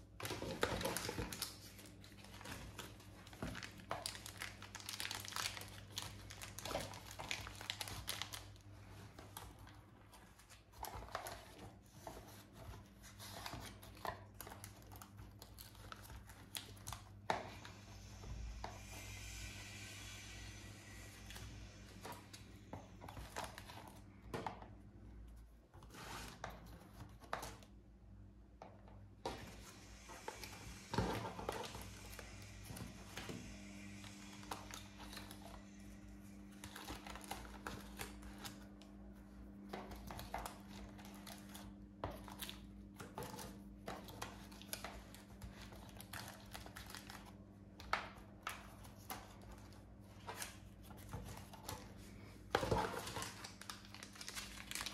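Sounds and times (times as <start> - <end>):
faint steady hum: 0.0 - 54.9
plastic bags crinkling: 0.1 - 9.7, 52.6 - 54.9.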